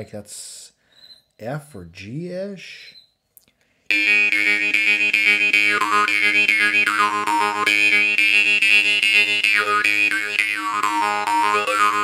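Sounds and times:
jaw harp plucking: 0:03.9 - 0:12.0.

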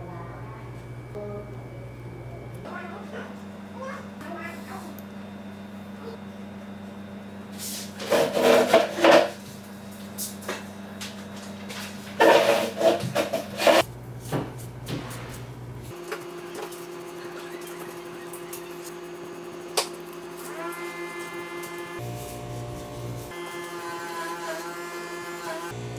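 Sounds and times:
steady low hum: 0:00.0 - 0:23.4.

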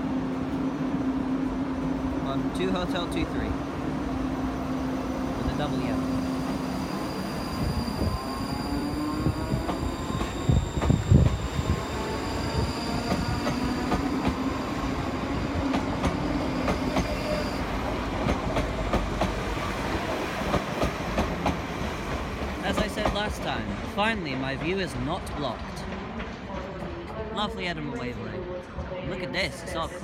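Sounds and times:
train rumble: 0:00.0 - 0:27.4
train electric whine: 0:04.4 - 0:17.9.

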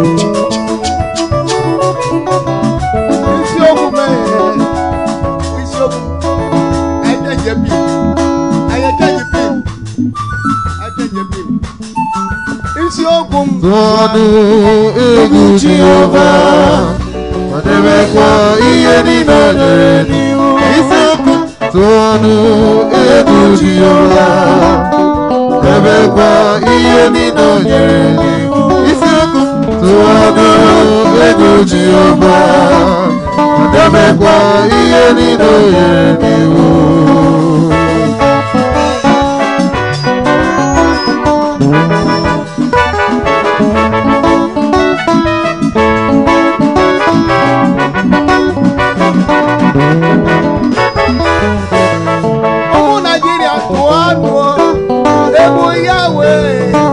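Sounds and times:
bass guitar: 0:00.0 - 0:56.9
drum kit playing: 0:00.0 - 0:56.9
keyboard playing: 0:00.0 - 0:56.9
voices singing: 0:13.4 - 0:42.7, 0:53.6 - 0:56.9.

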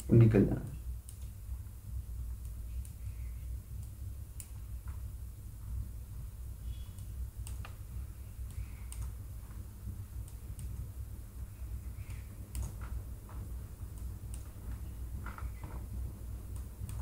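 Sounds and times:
low steady hum: 0:00.0 - 0:17.0
computer mouse clicks: 0:01.0 - 0:01.4, 0:06.6 - 0:07.8, 0:08.4 - 0:09.2, 0:11.9 - 0:12.8.

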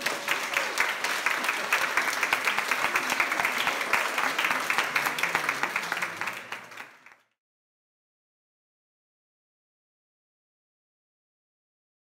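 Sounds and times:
crowd clapping: 0:00.0 - 0:07.4.

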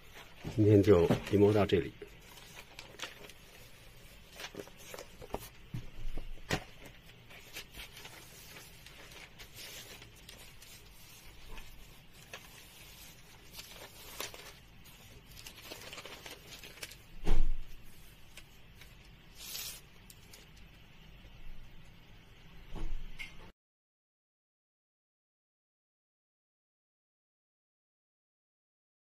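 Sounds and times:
paper rustling: 0:00.0 - 0:20.7
thump: 0:17.2 - 0:17.7, 0:22.7 - 0:23.1
papery swish: 0:19.3 - 0:19.8.

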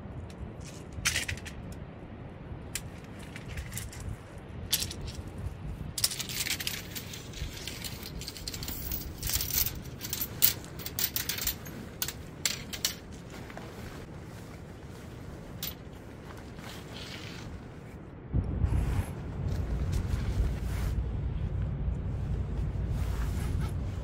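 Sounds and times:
wind: 0:00.0 - 0:24.0
tent pole clicking and rattling: 0:06.0 - 0:14.6, 0:15.4 - 0:17.7
tent fabric rustling: 0:07.0 - 0:18.0, 0:22.4 - 0:24.0.

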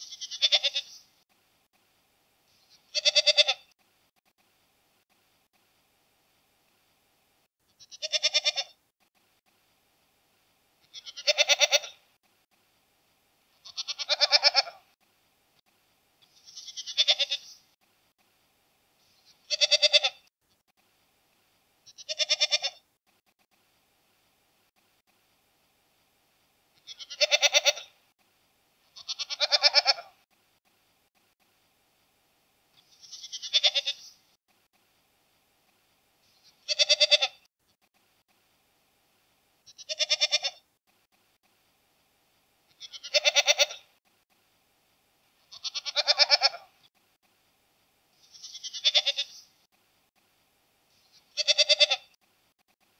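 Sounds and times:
goats bleating: 0:00.0 - 0:01.0, 0:02.9 - 0:03.7, 0:10.9 - 0:12.0, 0:13.6 - 0:14.8, 0:16.4 - 0:17.6, 0:19.4 - 0:20.2, 0:21.9 - 0:22.8, 0:26.8 - 0:27.9, 0:29.0 - 0:30.1, 0:32.8 - 0:34.2, 0:36.5 - 0:37.4, 0:39.7 - 0:40.6, 0:42.8 - 0:43.8, 0:45.5 - 0:46.7, 0:48.2 - 0:49.4, 0:51.2 - 0:52.1.

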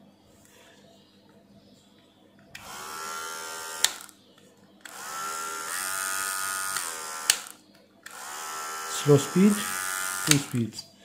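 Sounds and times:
electric hair clipper humming: 0:02.6 - 0:04.1, 0:04.8 - 0:10.7.

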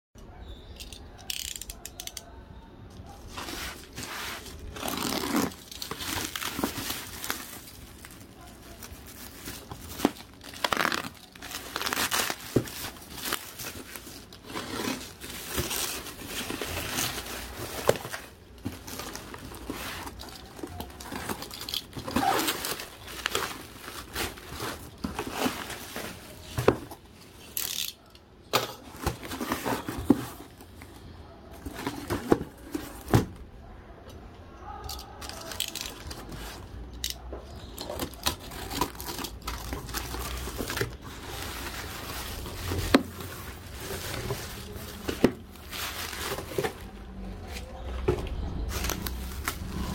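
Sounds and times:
bubble wrap crinkling and tearing: 0:03.2 - 0:26.8, 0:37.6 - 0:49.9.

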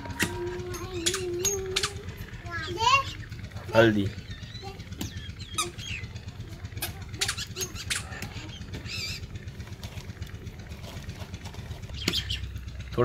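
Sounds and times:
steady low hum: 0:00.0 - 0:13.0
sharp clicks: 0:01.0 - 0:02.1.

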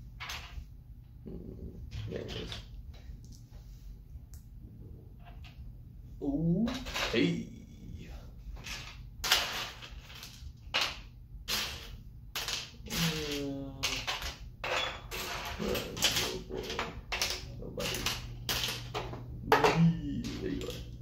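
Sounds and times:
plastic bricks clicking and clattering: 0:08.7 - 0:21.0.

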